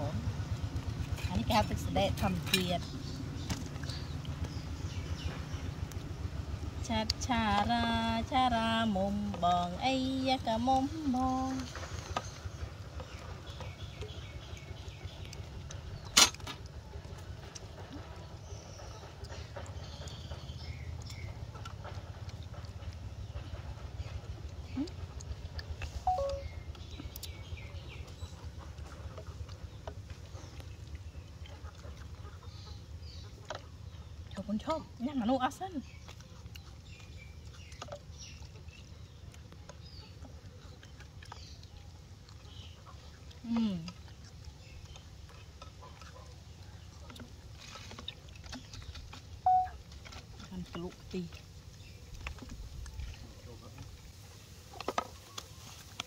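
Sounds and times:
faint high chirps: 26.0s - 26.6s, 49.4s - 49.8s
faint bird chirps: 26.0s - 27.8s, 48.7s - 49.8s.

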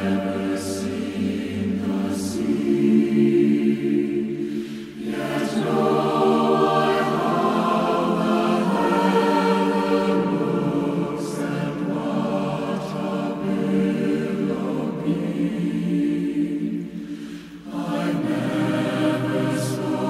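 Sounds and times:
choir singing held chords: 0.0s - 20.0s.

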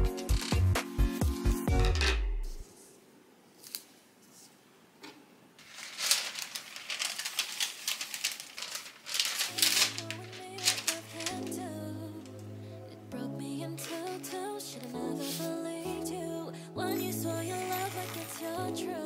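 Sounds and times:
soft music: 0.0s - 2.7s, 9.1s - 19.0s
paper and cloth rustling: 5.6s - 12.5s, 13.7s - 16.0s, 17.0s - 19.0s.

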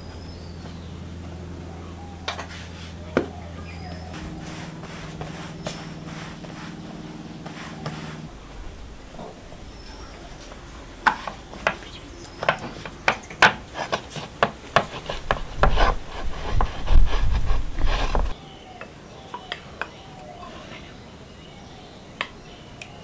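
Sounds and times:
dough rubbing and scraping: 2.4s - 3.1s, 4.0s - 18.4s.

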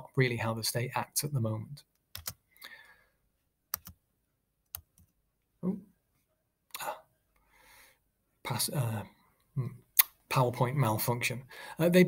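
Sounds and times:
person breathing: 2.4s - 3.3s, 6.8s - 8.1s, 11.5s - 11.8s
computer mouse clicks: 3.7s - 4.0s.

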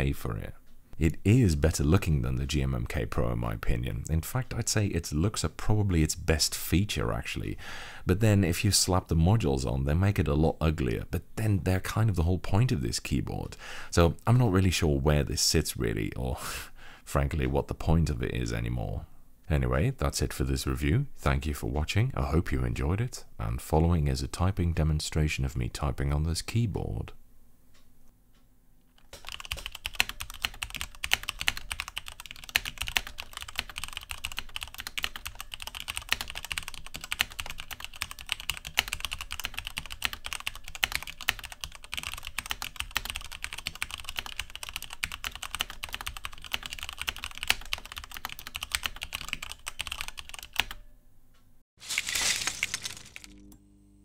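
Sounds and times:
keyboard typing clatter: 29.0s - 50.8s.

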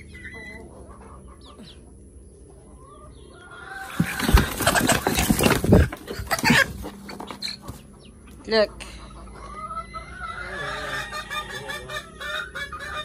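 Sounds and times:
chickens clucking softly: 0.0s - 13.0s
wings flapping and scuffling: 3.7s - 7.9s.

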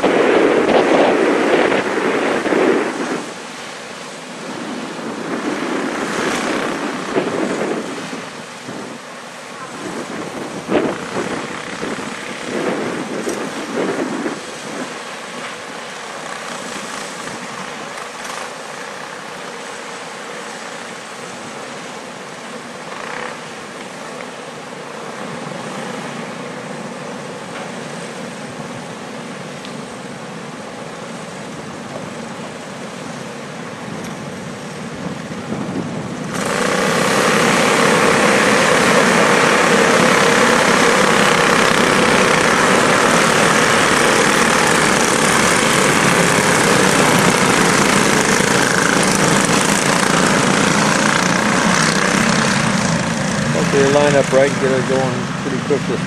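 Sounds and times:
wind buffeting microphone: 0.0s - 3.6s, 4.2s - 18.3s, 33.7s - 56.0s.

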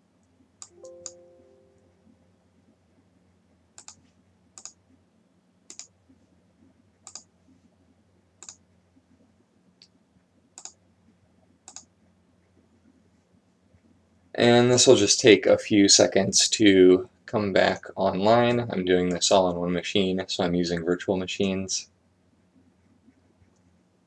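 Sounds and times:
faint low hum: 0.0s - 24.0s
computer mouse clicking: 3.8s - 4.8s, 5.7s - 6.0s, 7.0s - 7.3s, 8.4s - 8.6s, 10.6s - 10.8s, 11.6s - 11.9s.

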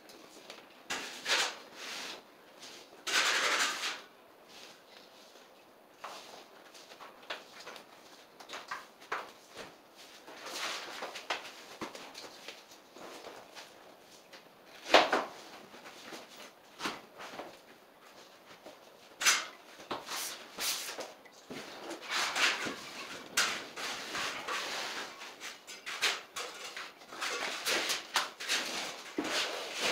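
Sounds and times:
vinyl flooring scraping and rustling: 0.1s - 29.9s.

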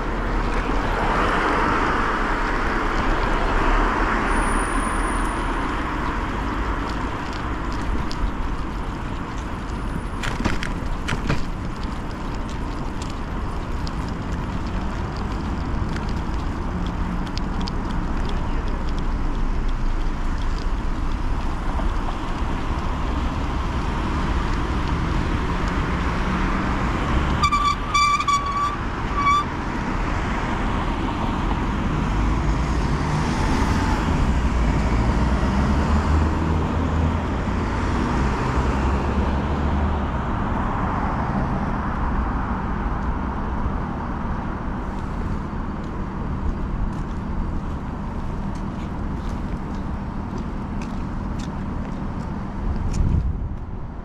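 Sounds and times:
street traffic: 0.0s - 54.0s
wind noise: 0.0s - 54.0s
vehicle passing: 29.7s - 44.2s.

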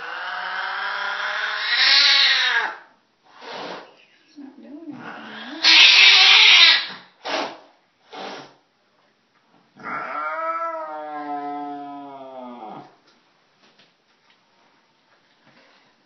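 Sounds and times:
cat yowling: 0.0s - 2.9s, 5.2s - 7.0s, 9.8s - 13.0s
cat hissing: 0.0s - 4.0s, 5.0s - 8.6s.

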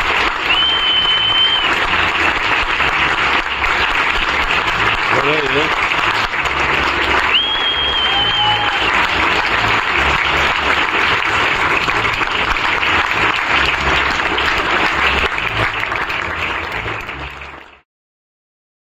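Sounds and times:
audience applauding: 0.0s - 17.8s
high steady whistle: 0.5s - 1.7s, 7.3s - 8.8s.

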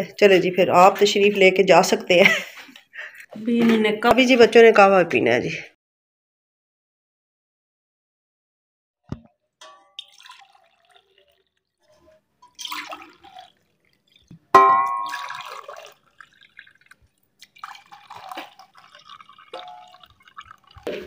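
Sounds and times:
pan clinking against cup: 9.6s - 10.4s, 14.6s - 15.7s
tea pouring and splashing: 9.6s - 21.0s.

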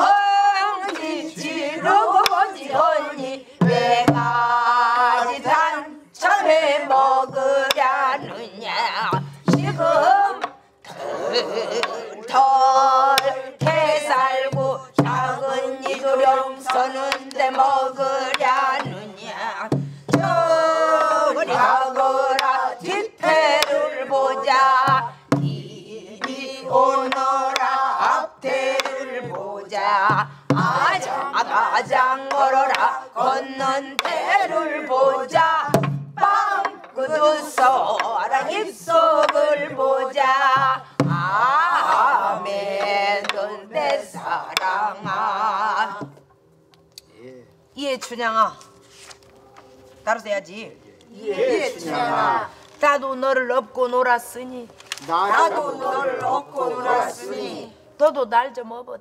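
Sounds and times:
stick striking barrel drum: 0.0s - 5.6s, 6.9s - 8.4s, 9.0s - 10.6s, 11.7s - 45.3s
woman singing long wavering notes: 0.0s - 46.0s.

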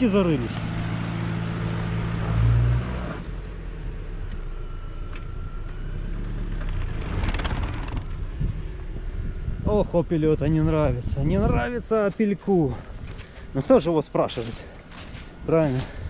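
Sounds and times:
car engine revving: 0.0s - 4.0s, 5.8s - 9.6s
wheels spinning in sand: 6.4s - 8.6s.

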